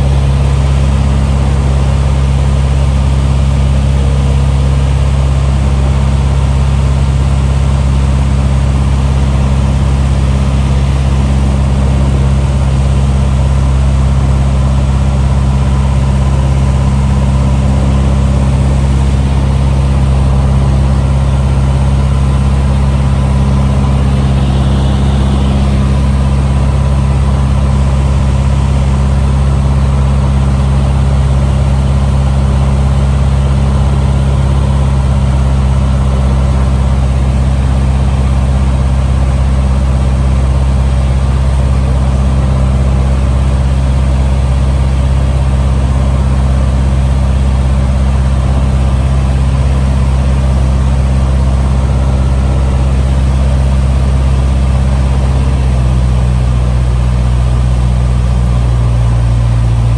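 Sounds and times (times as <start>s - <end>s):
small plane engine droning: 0.0s - 59.9s.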